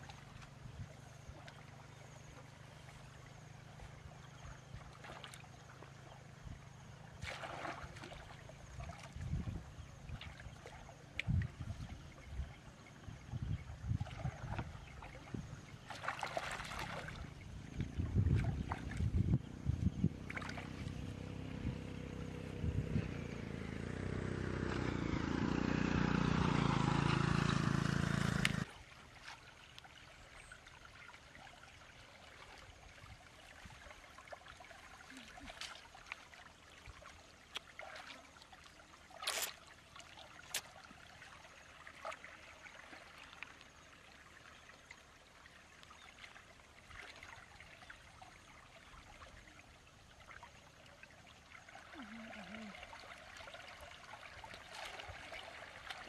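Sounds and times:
shallow water trickling: 0.0s - 19.6s, 28.8s - 56.0s
hands splashing in water: 7.2s - 9.1s.

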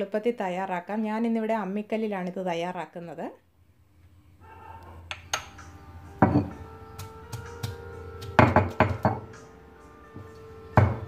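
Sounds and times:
faint background music: 0.0s - 11.0s
stone roller knocking on stone: 6.2s - 6.6s, 7.6s - 9.2s, 10.8s - 11.0s.

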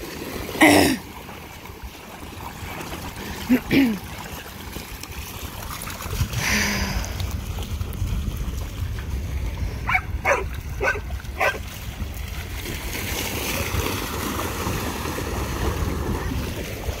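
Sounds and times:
water splashing: 0.0s - 17.0s
wind rumble on microphone: 4.8s - 17.0s
dog barking: 9.8s - 11.6s.

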